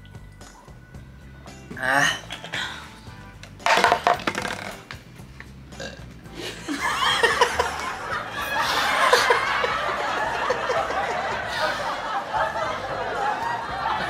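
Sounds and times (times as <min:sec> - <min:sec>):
person burping: 0:01.7 - 0:03.0, 0:03.7 - 0:04.8, 0:05.8 - 0:06.1
laughter: 0:06.4 - 0:14.0.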